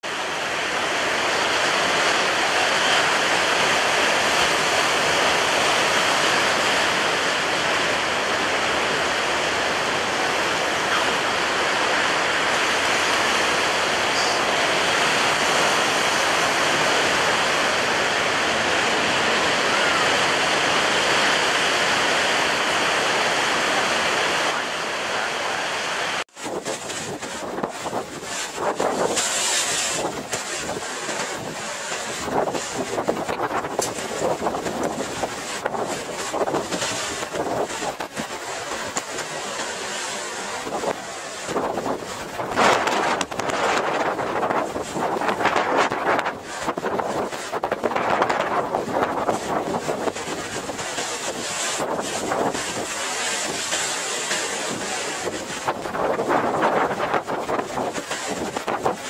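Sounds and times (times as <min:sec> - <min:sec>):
breaking waves: 0:00.0 - 0:59.0
wind: 0:00.0 - 0:59.0
wind buffeting microphone: 0:26.4 - 0:59.0.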